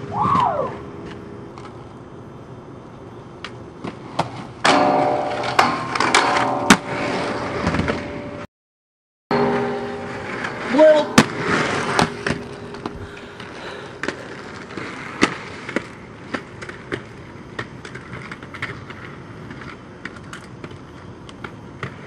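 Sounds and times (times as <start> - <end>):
inline skates scraping on concrete: 3.4 - 8.1, 9.8 - 22.0
skate wheels clacking on pavement: 3.4 - 8.2, 10.1 - 22.0.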